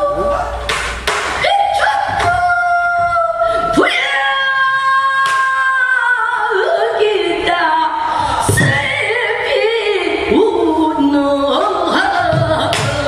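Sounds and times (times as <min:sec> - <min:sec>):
woman singing: 0:01.5 - 0:13.0.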